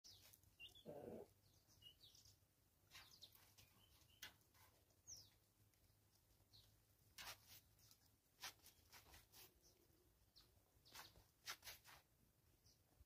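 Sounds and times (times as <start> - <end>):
faint bird chirps: 0.1 - 5.4.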